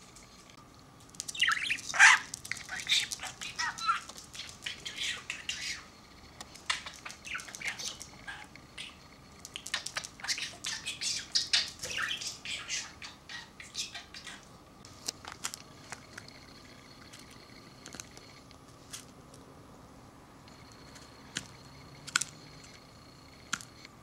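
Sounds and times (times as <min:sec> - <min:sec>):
budgerigar chirping: 0:01.4 - 0:05.9, 0:06.7 - 0:09.0, 0:09.6 - 0:14.4.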